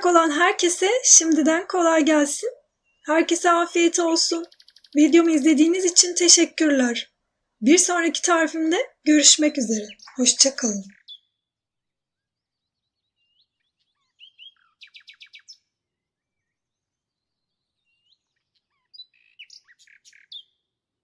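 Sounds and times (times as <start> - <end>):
faint bird chirps: 4.0 - 5.9, 9.2 - 11.5, 12.2 - 20.8.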